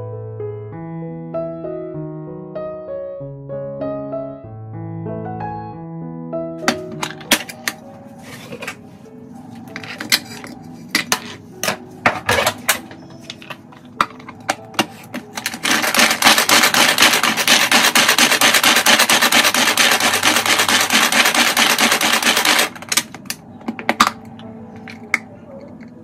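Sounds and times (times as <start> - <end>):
hand chopper rattling: 11.1 - 23.4.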